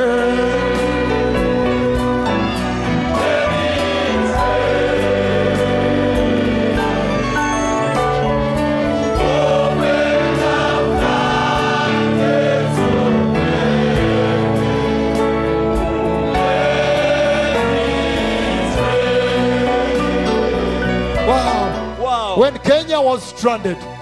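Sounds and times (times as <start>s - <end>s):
choir singing: 0.0s - 22.0s.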